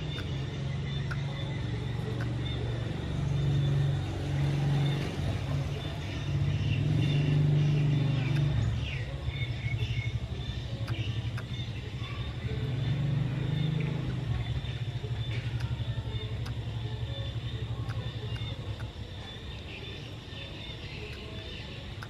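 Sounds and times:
motor engine rumbling: 0:00.0 - 0:22.0.

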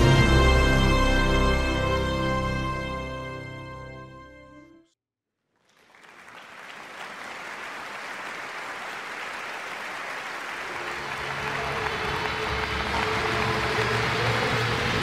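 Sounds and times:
low music: 0:00.0 - 0:04.9
large audience applauding: 0:05.5 - 0:15.0.

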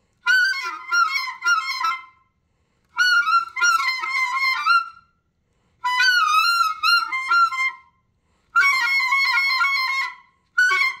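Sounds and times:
clarinet playing wavering phrases: 0:00.2 - 0:02.2, 0:03.0 - 0:05.0, 0:05.8 - 0:07.9, 0:08.6 - 0:11.0.

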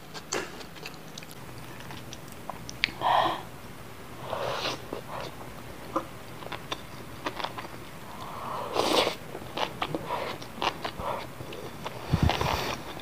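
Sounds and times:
wet chewing clicks: 0:00.1 - 0:03.0
person slurping noodles: 0:08.3 - 0:13.0.

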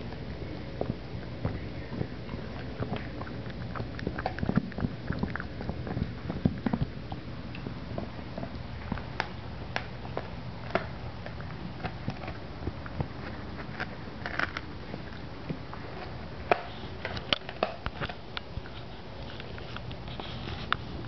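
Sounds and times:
puppy chewing on toy: 0:00.0 - 0:21.0.

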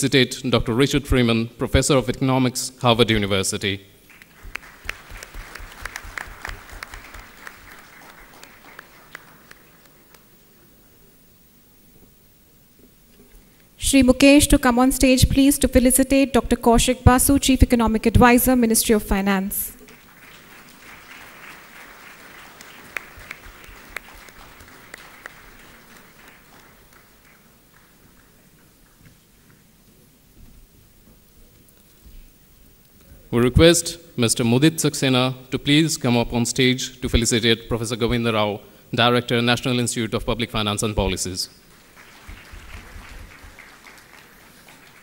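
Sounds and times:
audience applauding: 0:04.0 - 0:10.6, 0:19.8 - 0:29.2, 0:41.6 - 0:45.0.

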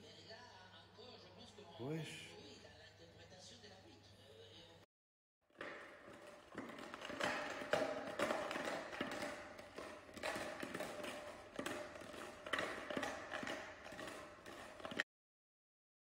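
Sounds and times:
plastic bottle crinkling: 0:05.5 - 0:15.0
bottle banging on foam mat: 0:05.6 - 0:15.0.

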